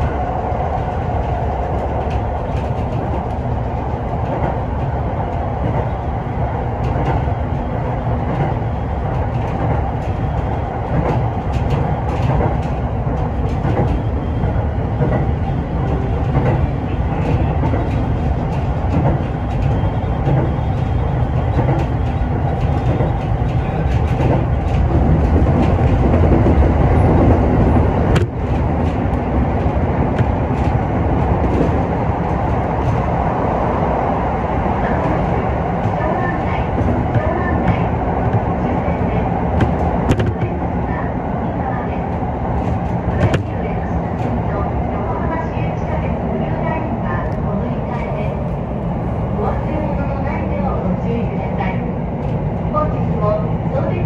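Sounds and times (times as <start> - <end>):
rail clicks: 0.0 - 54.0
train wheels rumbling on rail: 0.0 - 54.0.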